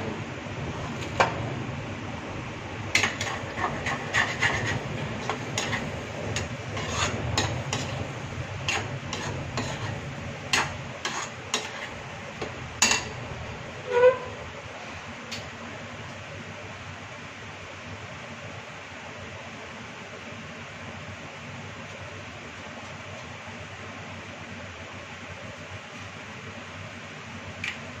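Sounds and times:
low steady hum: 0.0s - 28.0s
metal spatula scraping a pan: 2.9s - 12.0s, 12.8s - 13.2s, 13.8s - 14.4s.

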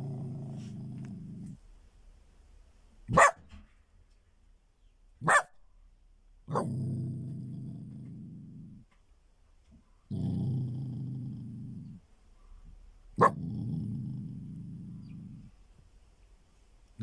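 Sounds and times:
small dog growling: 0.0s - 1.6s, 6.5s - 8.9s, 10.1s - 12.0s, 13.2s - 15.6s
dog barking sharply: 3.1s - 3.5s, 5.2s - 5.6s.

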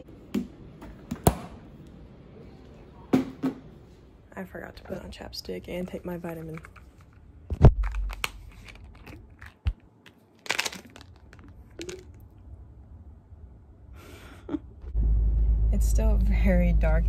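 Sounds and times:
bottle clicks and crinkles: 6.3s - 12.3s.

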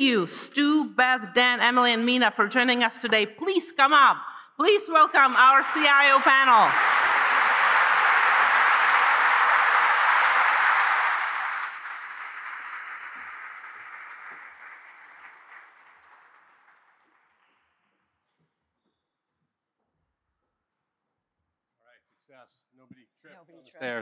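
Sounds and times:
audience applauding: 5.2s - 17.6s.

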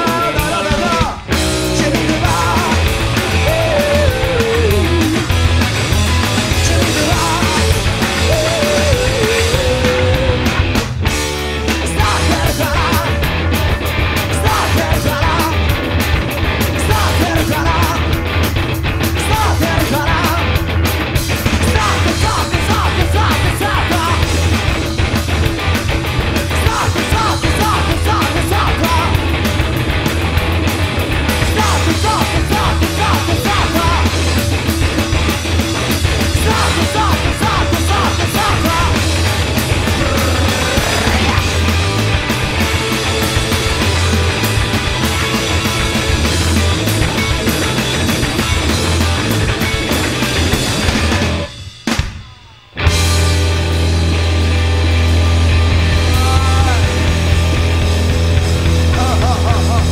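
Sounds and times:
electric bass: 0.0s - 52.0s, 52.8s - 59.9s
distorted electric guitar: 0.0s - 59.9s
drums: 0.0s - 59.9s.

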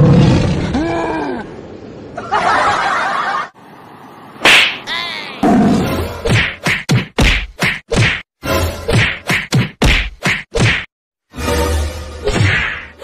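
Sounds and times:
short rising and falling cries: 2.4s - 5.6s
sharp whacks: 4.4s - 4.9s, 6.2s - 8.2s, 8.9s - 10.9s, 12.2s - 13.0s.

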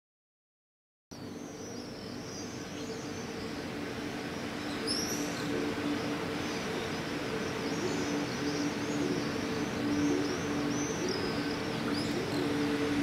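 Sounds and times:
low mechanical hum: 1.1s - 13.0s
distant traffic hiss: 1.2s - 13.0s
small birds chirping: 1.4s - 13.0s
downward-sweeping bird call: 4.6s - 13.0s.

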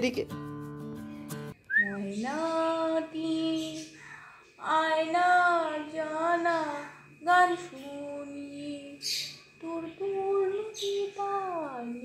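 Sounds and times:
woman singing: 1.8s - 4.0s, 4.6s - 12.0s.

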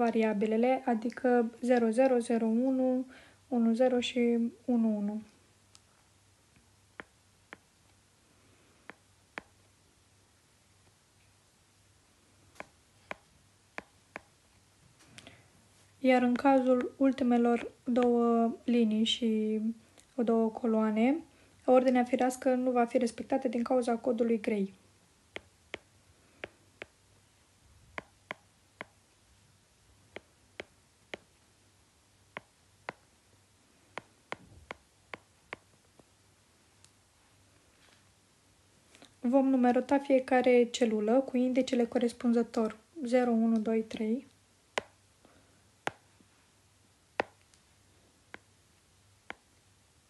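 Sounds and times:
stylus tapping on glass screen: 33.9s - 35.7s, 47.2s - 47.4s.

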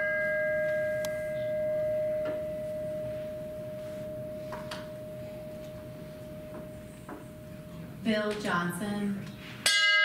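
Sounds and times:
bell tone ringing: 0.0s - 7.9s.

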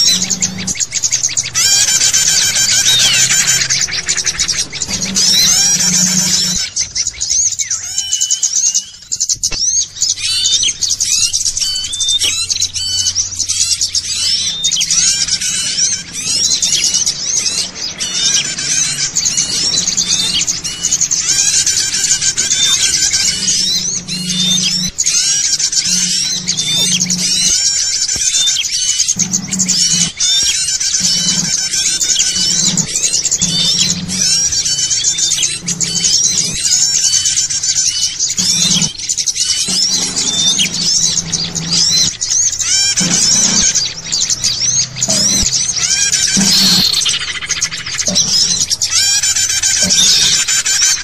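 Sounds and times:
low drone: 0.0s - 51.0s
songbirds chirping and twittering: 0.0s - 51.0s.

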